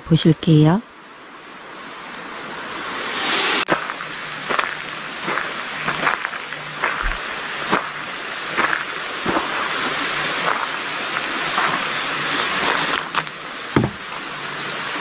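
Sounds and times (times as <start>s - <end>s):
high-pitched insect chorus: 0.2s - 15.0s
soft knocks or footsteps: 13.8s - 14.2s.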